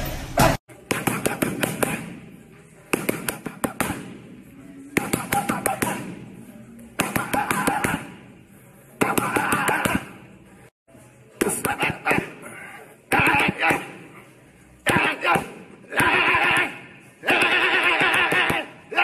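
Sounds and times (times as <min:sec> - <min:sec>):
boxing gloves hitting pads: 0:00.8 - 0:02.2, 0:02.9 - 0:04.2, 0:04.9 - 0:06.2, 0:07.0 - 0:08.2, 0:09.0 - 0:10.2, 0:14.9 - 0:19.0.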